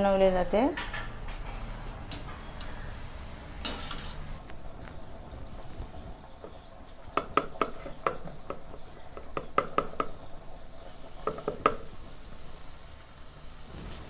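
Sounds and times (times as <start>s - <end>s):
fingers patting dough: 6.4s - 12.2s.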